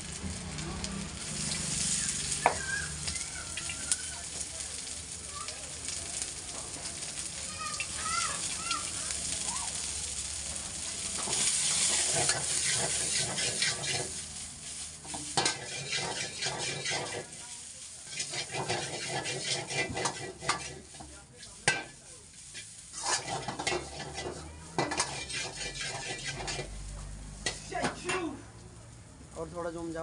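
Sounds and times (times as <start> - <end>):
vegetables sizzling in wok: 0.0 - 30.0
ladle scraping and clanking wok: 0.4 - 4.6, 9.8 - 28.4.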